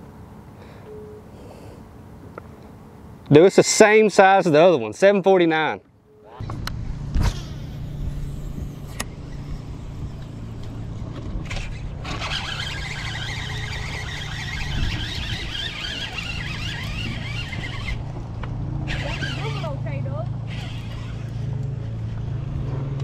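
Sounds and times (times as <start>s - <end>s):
boat motor humming: 6.3s - 23.0s.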